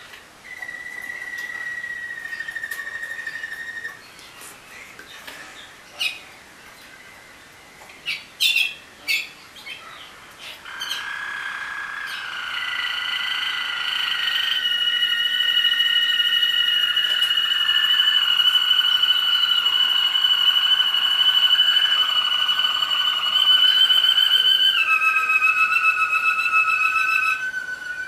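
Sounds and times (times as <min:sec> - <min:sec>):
canaries singing: 0:00.0 - 0:28.0.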